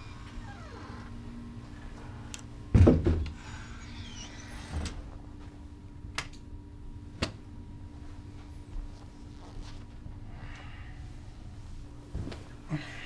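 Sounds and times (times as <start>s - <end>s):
plastic crate thudding on table: 2.8s - 3.2s.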